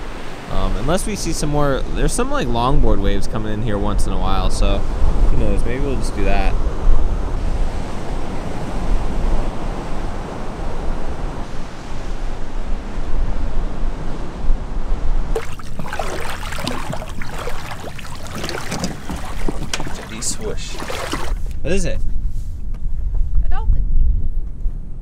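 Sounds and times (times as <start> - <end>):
waves breaking on beach: 0.0 - 1.4, 15.3 - 21.8
wind on microphone: 0.0 - 25.0
splashing in shallow water: 15.4 - 21.6.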